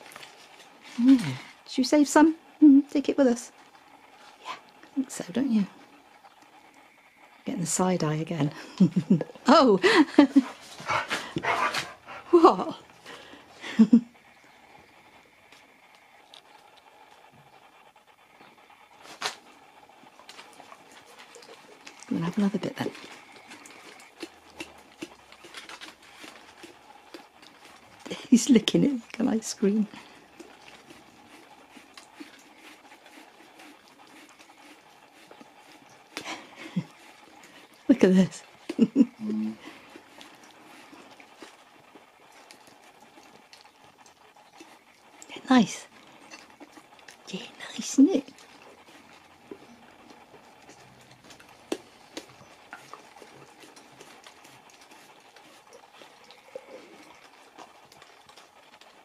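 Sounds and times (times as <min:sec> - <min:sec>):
dog licking wet smacks: 0:19.1 - 0:22.1, 0:22.8 - 0:28.3, 0:30.0 - 0:37.8, 0:48.3 - 0:59.0.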